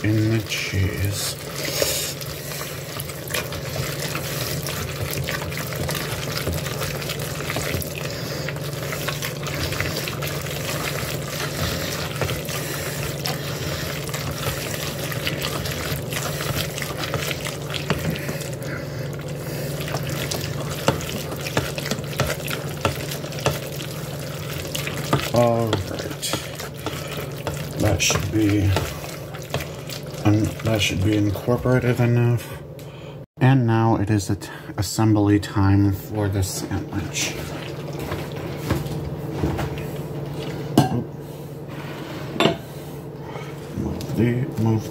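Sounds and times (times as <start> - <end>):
spoon stirring wet macaroni: 0.0 - 32.1.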